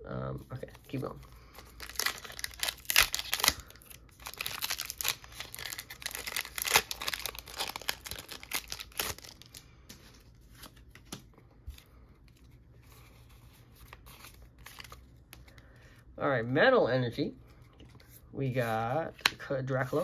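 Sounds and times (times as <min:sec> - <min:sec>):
foil pack tearing and crinkling: 0:01.7 - 0:09.6.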